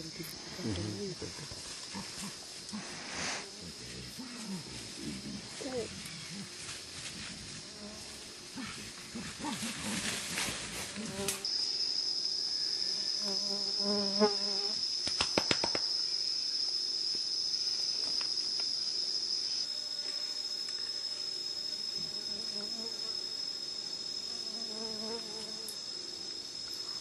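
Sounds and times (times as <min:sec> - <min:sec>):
insect high-pitched drone: 0:00.0 - 0:27.0
rustling and crackling: 0:09.1 - 0:11.4.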